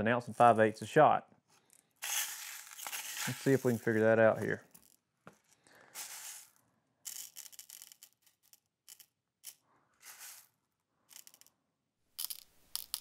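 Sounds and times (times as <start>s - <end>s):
metal pellets rattling into tray: 2.0s - 5.0s, 5.6s - 11.5s, 12.2s - 13.0s.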